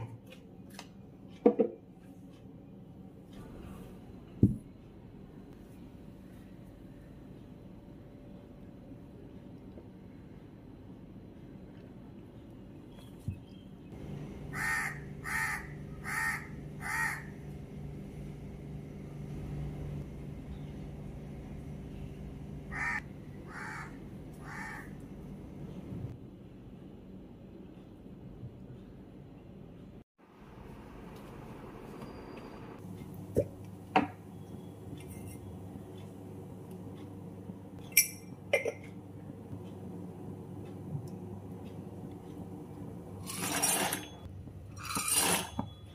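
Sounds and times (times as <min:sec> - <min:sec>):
low hum: 0:02.4 - 0:43.3
crow cawing: 0:14.5 - 0:17.3, 0:22.7 - 0:25.0.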